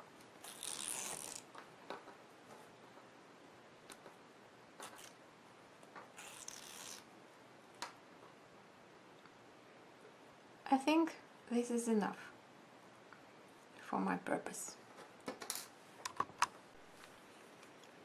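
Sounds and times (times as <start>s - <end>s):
threads pulled out of stiff tape: 0.3s - 1.6s, 4.8s - 5.2s, 6.1s - 7.1s.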